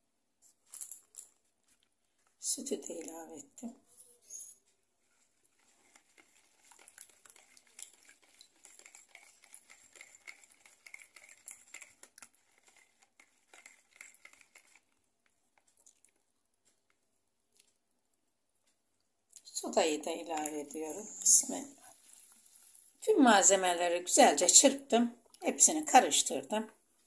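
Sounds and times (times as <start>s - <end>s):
whisk beating in a bowl: 5.5s - 15.0s.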